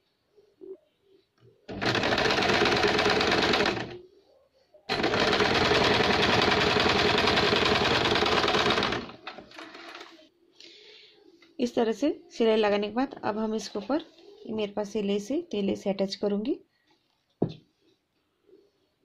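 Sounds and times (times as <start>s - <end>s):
electric sewing machine stitching: 1.7s - 4.0s, 4.9s - 10.1s.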